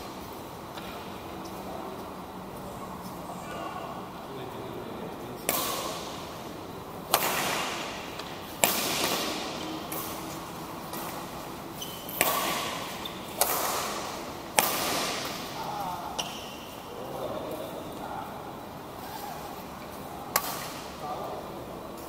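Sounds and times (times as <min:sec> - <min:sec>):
rackets striking shuttlecock: 0:05.4 - 0:06.4, 0:07.0 - 0:16.8, 0:20.3 - 0:21.0.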